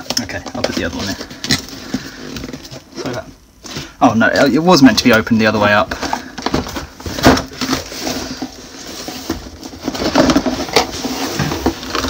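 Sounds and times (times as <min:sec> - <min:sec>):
cardboard box rustling and scraping: 0:06.6 - 0:12.0.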